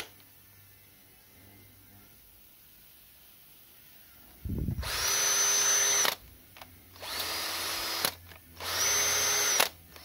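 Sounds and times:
cordless drill whining: 4.8s - 6.2s, 7.0s - 10.0s.

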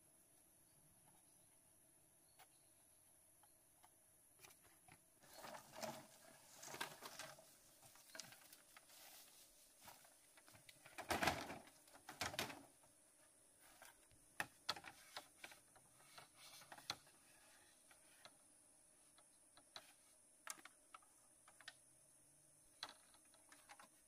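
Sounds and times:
short rustle: 5.2s - 10.7s.

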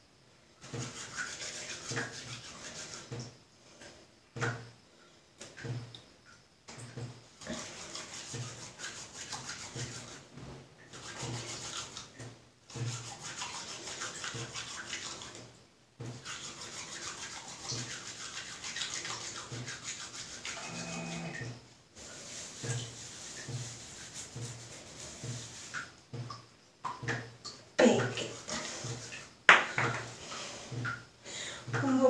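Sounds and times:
wet hands rubbing together: 16.2s - 26.4s, 27.8s - 30.9s.

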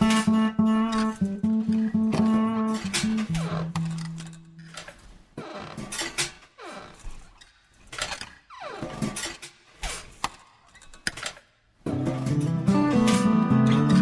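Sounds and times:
electronic background music: 0.0s - 4.8s, 11.9s - 14.0s.

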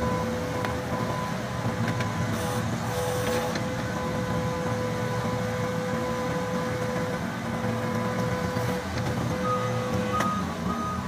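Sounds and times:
diesel engine under load: 0.0s - 11.0s.

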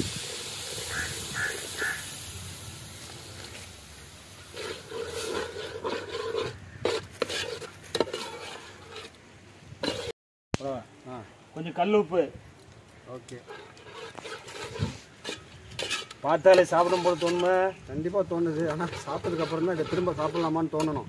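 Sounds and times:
water sizzling in hot pot: 0.0s - 6.2s, 13.3s - 21.0s
ladle stirring and scraping pot: 4.4s - 9.2s, 9.8s - 10.1s, 13.4s - 17.8s, 18.4s - 21.0s.

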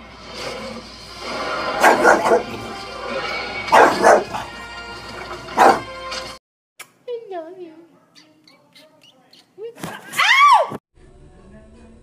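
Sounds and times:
television music soundtrack: 0.0s - 6.4s, 11.0s - 12.0s
dog barking: 1.8s - 2.6s, 3.7s - 4.5s, 5.5s - 5.9s.

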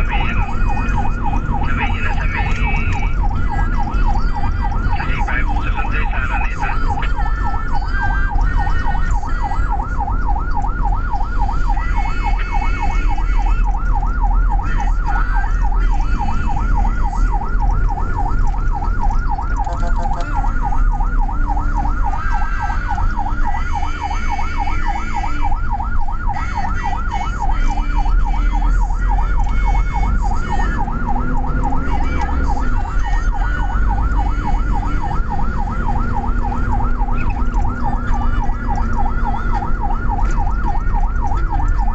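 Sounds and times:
ambulance siren yelping: 0.0s - 41.9s
engine and road rumble: 0.0s - 41.9s.

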